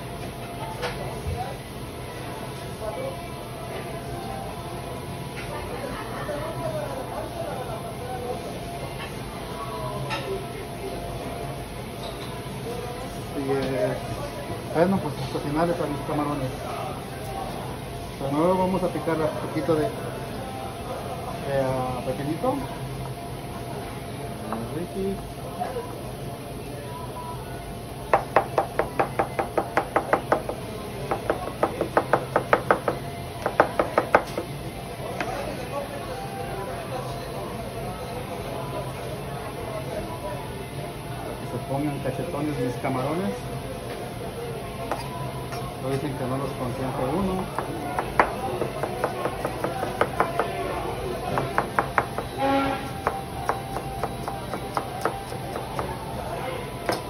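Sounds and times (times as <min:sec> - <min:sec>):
knife chopping on cutting board: 0:47.5 - 0:50.6, 0:53.0 - 0:55.9.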